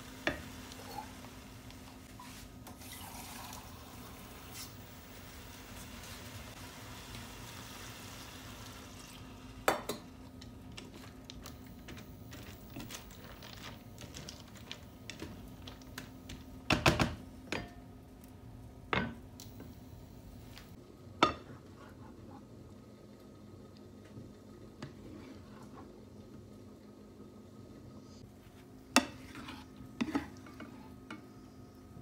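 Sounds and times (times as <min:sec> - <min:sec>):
low steady hum: 0:03.4 - 0:32.0
wooden utensil scraping a pan: 0:29.0 - 0:31.0.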